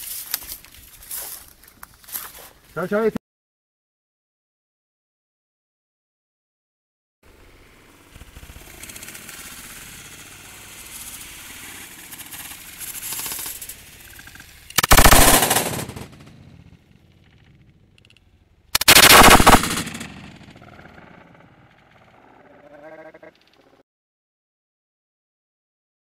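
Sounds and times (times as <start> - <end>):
shotgun blasts: 14.8 - 16.6, 18.8 - 20.9.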